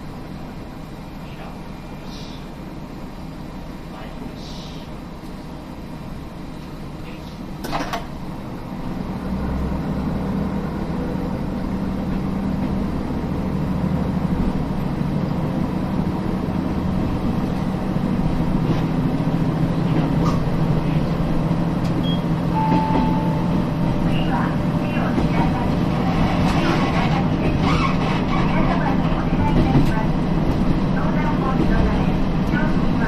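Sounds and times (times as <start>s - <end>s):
diesel railcar engine revving: 0.0s - 33.0s
short high tone: 22.5s - 23.8s.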